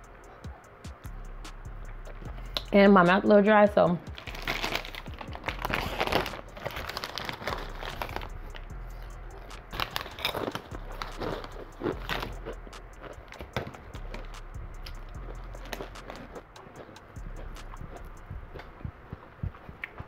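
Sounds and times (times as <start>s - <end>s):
hand rummaging among chips: 4.1s - 14.2s
chip bag crinkling: 4.1s - 17.0s.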